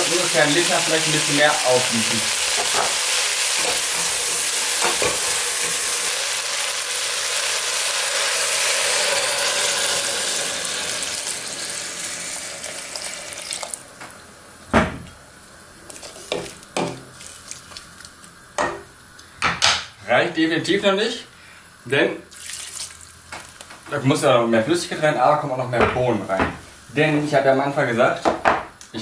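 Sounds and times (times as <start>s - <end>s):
broth sizzling in hot pot: 0.0s - 19.3s, 21.4s - 24.7s.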